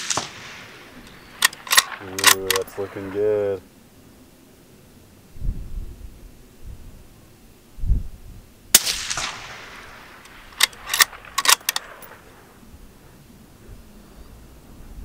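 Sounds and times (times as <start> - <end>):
rifle shot with echo: 0.0 - 3.2, 8.7 - 12.6
rifle bolt clicks: 1.0 - 2.8, 10.1 - 12.2.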